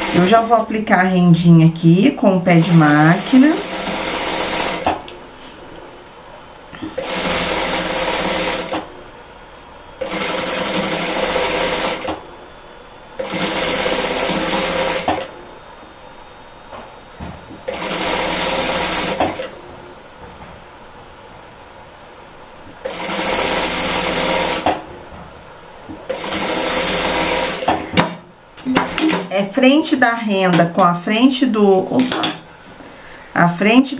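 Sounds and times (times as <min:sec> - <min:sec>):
sewing machine stitching: 0:00.0 - 0:00.6, 0:02.6 - 0:05.0, 0:07.0 - 0:08.9, 0:10.0 - 0:12.2, 0:13.2 - 0:15.3, 0:17.7 - 0:19.6, 0:22.8 - 0:24.8, 0:26.1 - 0:29.3.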